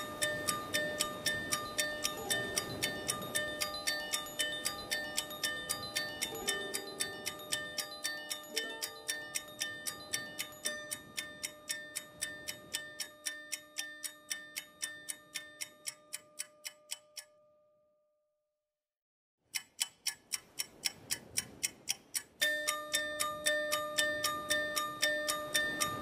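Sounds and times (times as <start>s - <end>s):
held music chords: 0.0s - 17.2s
clock-like ticking: 0.0s - 17.4s, 19.4s - 26.0s.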